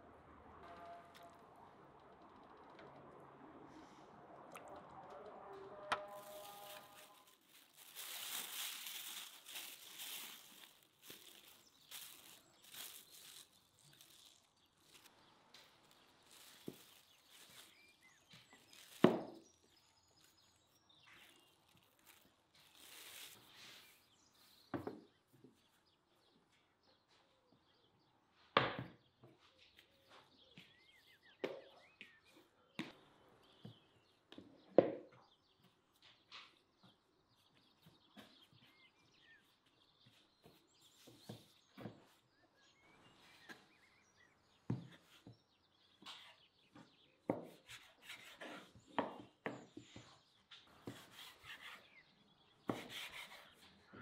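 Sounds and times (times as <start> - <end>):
knife cutting dough on wood: 52.6 - 53.6.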